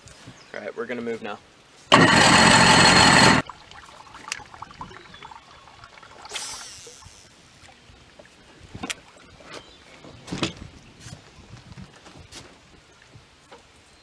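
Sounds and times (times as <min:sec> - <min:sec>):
fishing reel line whirring: 0:01.9 - 0:03.4.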